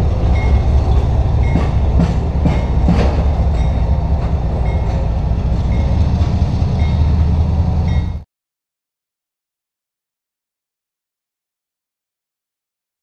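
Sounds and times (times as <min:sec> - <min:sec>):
train wheels rumbling on rail: 0:00.0 - 0:08.2
sharp clicks of train wheels: 0:00.1 - 0:08.2.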